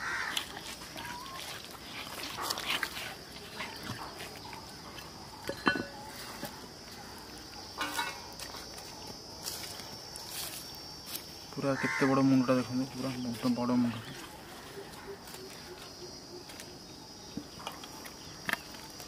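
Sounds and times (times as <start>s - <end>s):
wet crunches: 0.0s - 5.4s, 17.3s - 19.0s.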